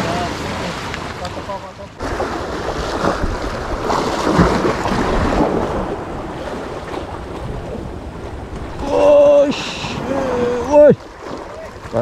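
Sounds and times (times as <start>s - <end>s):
water lapping at wall: 0.0s - 12.0s
wind buffeting microphone: 2.0s - 11.6s.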